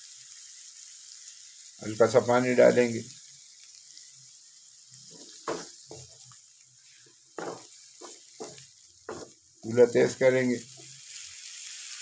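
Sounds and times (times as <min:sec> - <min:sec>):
food sizzling in pan: 0:00.0 - 0:12.0
spoon scraping pan: 0:05.0 - 0:06.4, 0:07.4 - 0:09.4.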